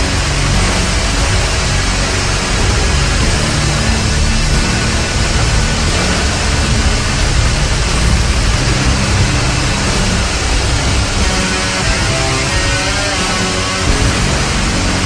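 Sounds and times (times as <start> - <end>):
loud distorted music: 0.0 - 15.0.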